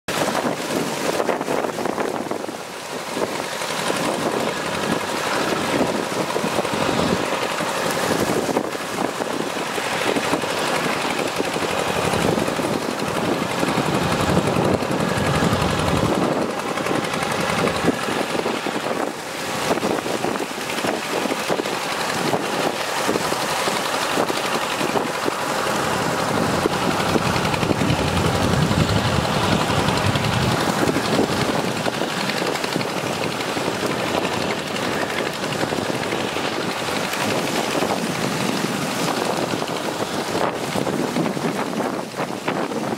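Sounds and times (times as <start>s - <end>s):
farm machine engines rattling: 0.1s - 42.9s.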